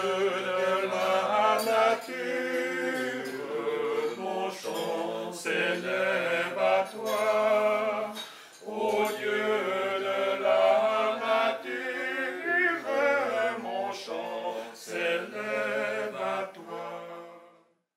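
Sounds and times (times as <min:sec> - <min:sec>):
men singing in harmony: 0:00.0 - 0:17.7.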